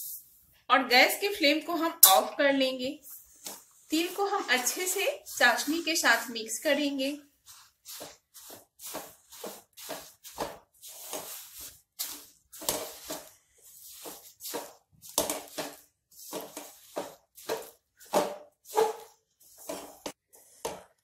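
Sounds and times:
spatula scraping metal pan: 0:03.9 - 0:06.7, 0:07.6 - 0:20.1.

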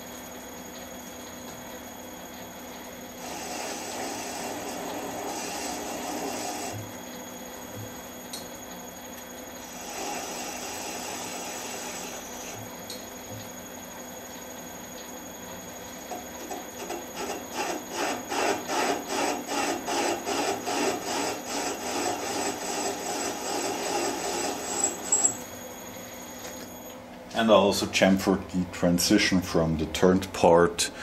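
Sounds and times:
lathe machine hum: 0:03.1 - 0:07.6, 0:09.0 - 0:14.9, 0:15.7 - 0:26.9
rhythmic scraping cut: 0:16.7 - 0:25.4.

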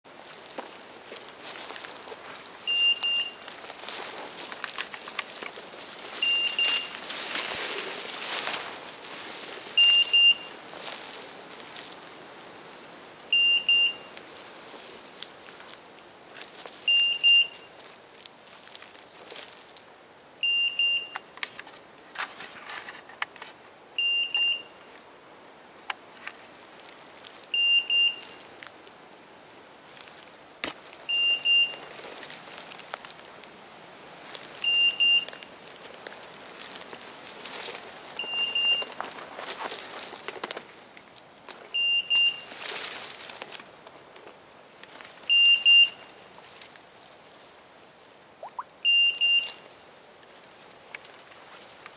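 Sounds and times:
brush and leaves rustling: 0:00.0 - 0:20.0, 0:21.1 - 0:51.9
beeper collar double beep: 0:02.7 - 0:03.5, 0:06.2 - 0:06.9, 0:09.8 - 0:10.5, 0:13.3 - 0:14.1, 0:16.9 - 0:17.6, 0:27.6 - 0:28.2, 0:31.1 - 0:31.8, 0:45.3 - 0:46.0, 0:48.4 - 0:49.6.

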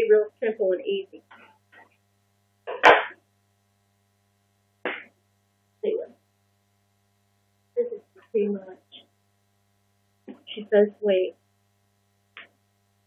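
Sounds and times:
low electrical hum: 0:00.0 - 0:13.0
sharp knock: 0:04.8 - 0:05.1.

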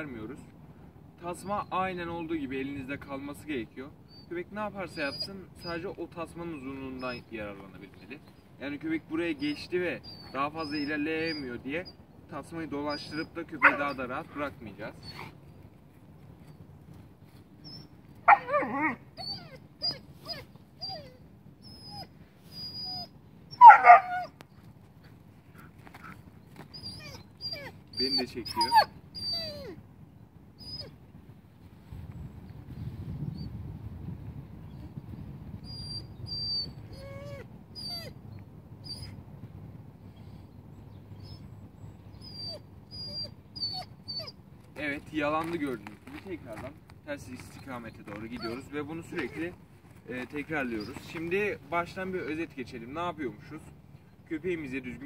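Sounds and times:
puppy whimpering: 0:04.1 - 0:05.9, 0:06.5 - 0:07.4, 0:09.3 - 0:12.0, 0:12.8 - 0:15.4, 0:17.6 - 0:24.3, 0:26.0 - 0:29.8, 0:30.6 - 0:31.0, 0:35.6 - 0:38.2, 0:38.8 - 0:39.2, 0:42.2 - 0:44.4, 0:47.4 - 0:49.6, 0:50.4 - 0:51.3
puppy yelping: 0:04.1 - 0:05.9, 0:06.6 - 0:07.3, 0:09.3 - 0:12.0, 0:12.8 - 0:15.4, 0:17.6 - 0:24.4, 0:26.0 - 0:29.8, 0:30.6 - 0:31.0, 0:35.6 - 0:38.2, 0:38.8 - 0:39.2, 0:42.1 - 0:44.4, 0:47.4 - 0:49.5, 0:50.6 - 0:51.3.

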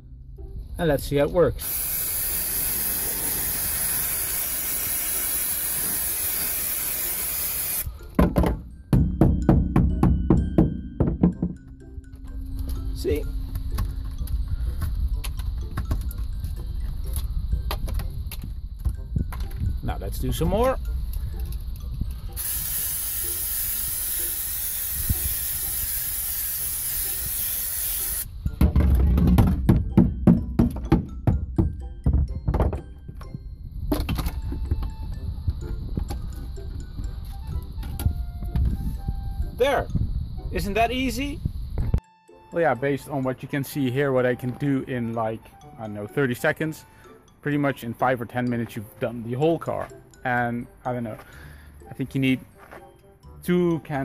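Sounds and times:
aerosol spray hissing: 0:01.6 - 0:08.0, 0:22.1 - 0:28.4.

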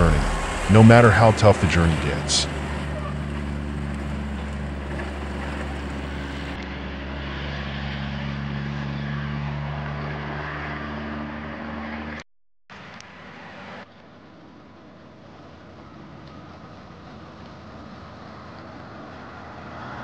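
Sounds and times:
truck diesel engine running: 0:00.0 - 0:06.6.

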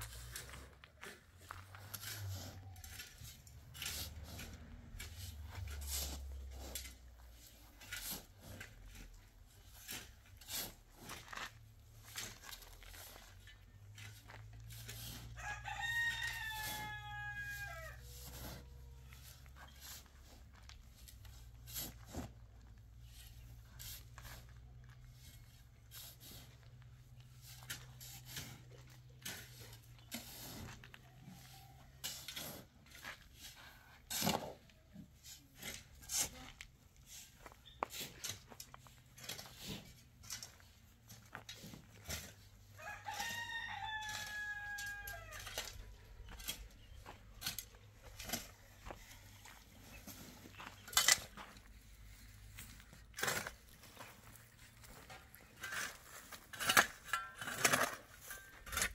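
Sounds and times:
rooster crowing: 0:15.4 - 0:18.1, 0:42.8 - 0:45.6.

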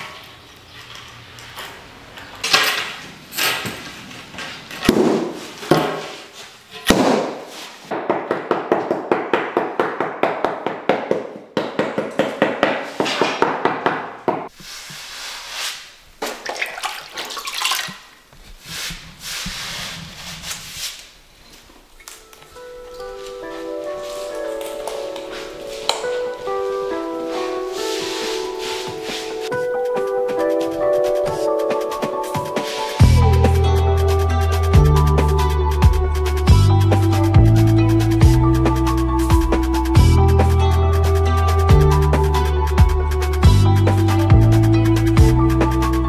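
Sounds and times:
wet sponge wiping tiles: 0:14.5 - 0:16.1, 0:18.4 - 0:21.2, 0:25.2 - 0:33.0.

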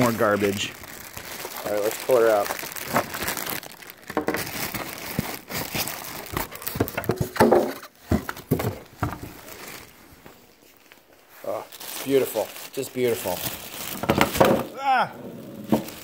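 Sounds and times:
plastic bag and foam crinkling: 0:00.0 - 0:16.0.

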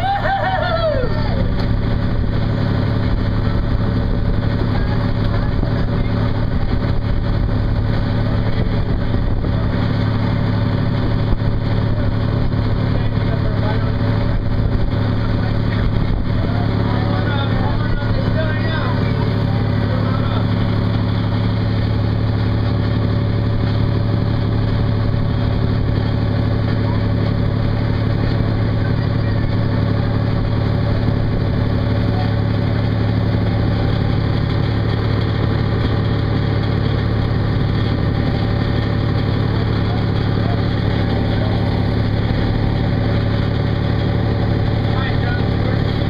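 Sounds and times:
boat engine humming: 0:00.0 - 0:46.0
water rushing along hull: 0:00.0 - 0:46.0.

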